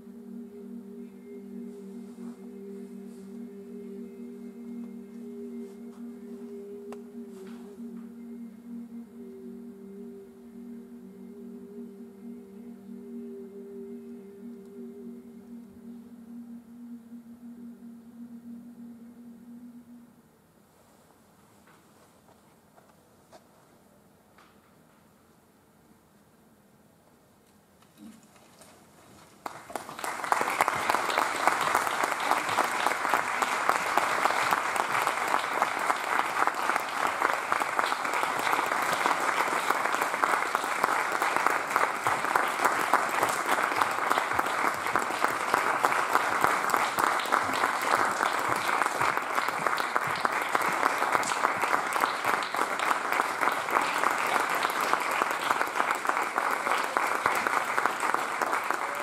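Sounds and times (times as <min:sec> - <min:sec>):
audience applauding: 0:29.4 - 0:59.0.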